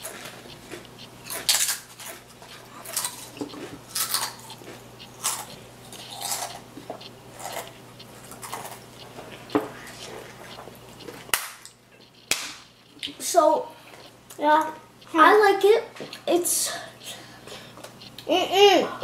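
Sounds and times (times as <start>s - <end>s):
potato chips crunching: 0.0s - 8.9s.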